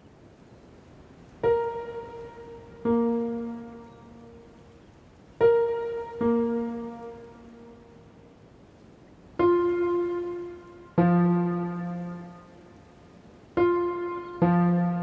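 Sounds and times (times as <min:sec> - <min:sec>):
piano notes ringing: 0:01.4 - 0:04.8, 0:05.4 - 0:08.2, 0:09.4 - 0:15.0.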